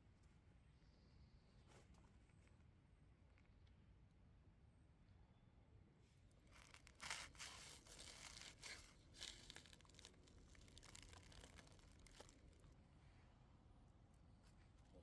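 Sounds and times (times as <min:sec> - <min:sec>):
foil crinkling and tearing: 0:06.5 - 0:12.7.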